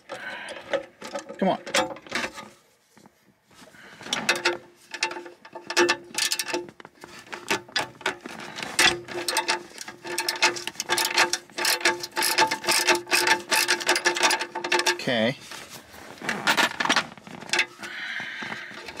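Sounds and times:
hand ratchet clicking: 0:08.8 - 0:15.0.

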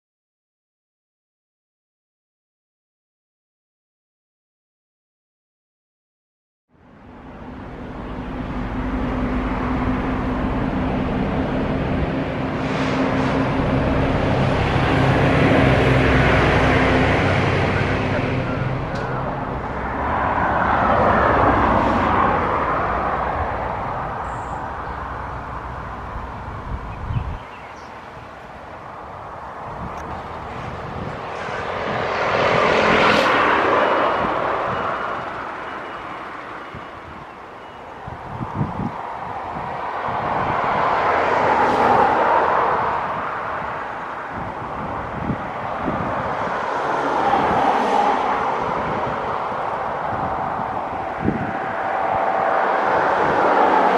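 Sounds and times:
jet engine rumble: 0:06.8 - 0:37.3.

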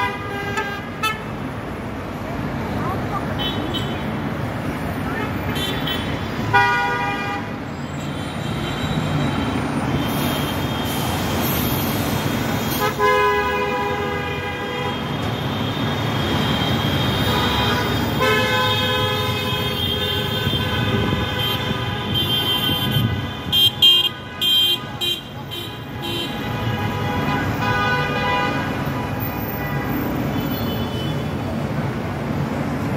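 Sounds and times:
steady traffic noise: 0:00.0 - 0:32.9
car horns honking: 0:05.5 - 0:07.6, 0:12.7 - 0:31.3.

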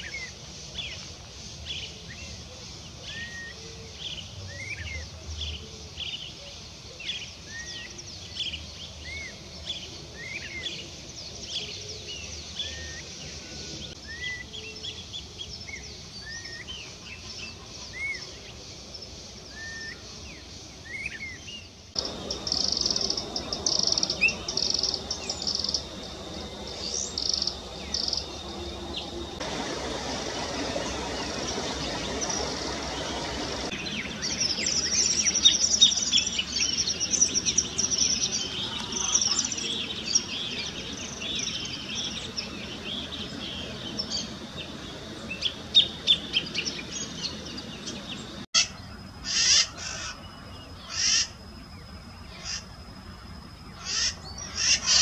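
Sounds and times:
bird high ticking notes: 0:22.0 - 0:33.7
macaws loud calls: 0:22.0 - 0:34.3, 0:48.6 - 0:50.2, 0:50.8 - 0:51.4, 0:52.4 - 0:52.7, 0:53.8 - 0:55.0
bird chattering song: 0:22.0 - 0:48.7.

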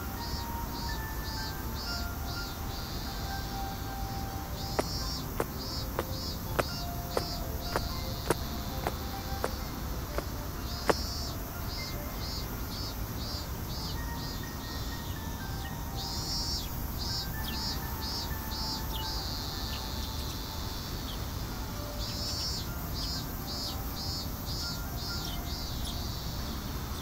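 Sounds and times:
high chirping pulse: 0:00.0 - 0:15.2
faint background tones: 0:00.0 - 0:27.0
footstep on steel stair: 0:04.8 - 0:11.2.

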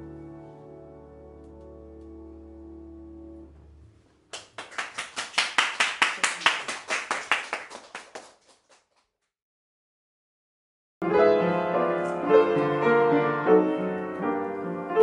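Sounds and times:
piano and upright bass chord: 0:00.0 - 0:04.0, 0:11.0 - 0:15.0
people clapping: 0:04.3 - 0:09.2.

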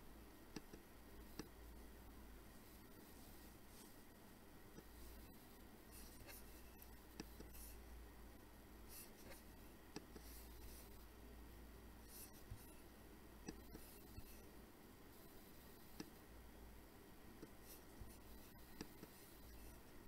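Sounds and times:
faint room hum and hiss: 0:00.0 - 0:20.0
computer mouse clicks: 0:00.5 - 0:01.6, 0:04.8 - 0:07.8, 0:09.0 - 0:11.0, 0:13.4 - 0:14.4, 0:15.3 - 0:16.2, 0:17.4 - 0:19.8.

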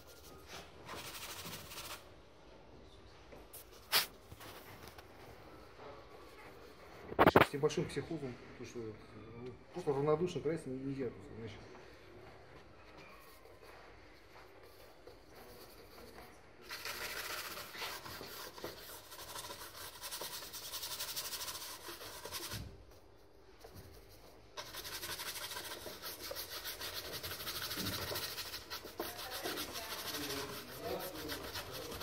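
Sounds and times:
paintbrush scrubbing canvas: 0:00.0 - 0:02.0, 0:14.4 - 0:22.7, 0:23.6 - 0:32.0.

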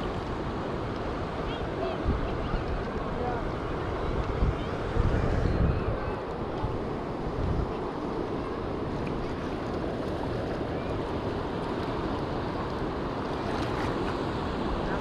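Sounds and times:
surf washing against rocks: 0:00.0 - 0:15.0
wind on microphone: 0:00.0 - 0:15.0.

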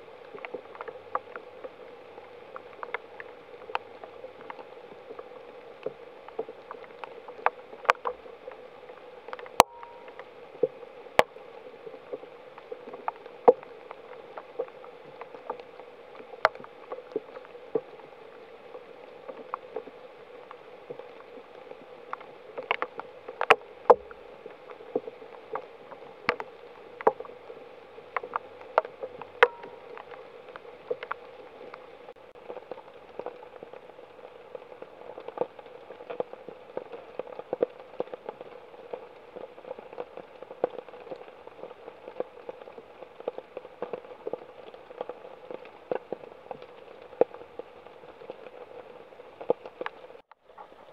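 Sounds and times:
large raindrops tapping: 0:00.0 - 0:50.9
steady rain: 0:00.0 - 0:50.9.

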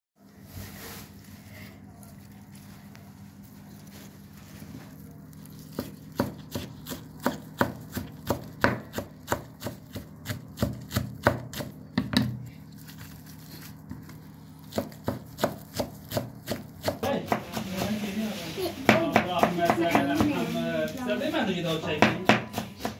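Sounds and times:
knife chopping on wooden board: 0:05.6 - 0:12.5, 0:14.0 - 0:18.0, 0:18.9 - 0:20.4, 0:22.0 - 0:22.9.

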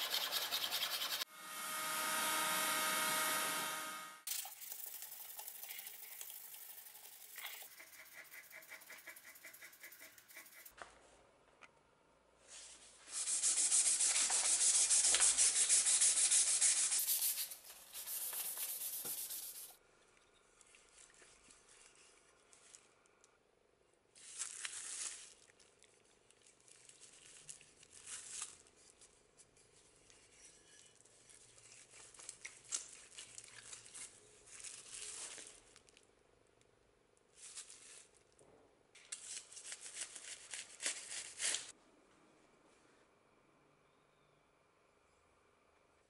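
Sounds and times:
sandpaper rubbing on wood: 0:00.0 - 0:01.3, 0:13.1 - 0:19.8.

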